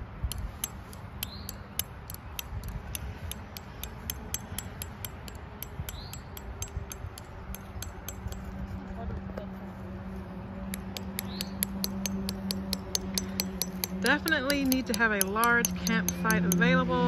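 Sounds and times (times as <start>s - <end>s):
hammer clinking on metal stake: 10.7s - 17.0s.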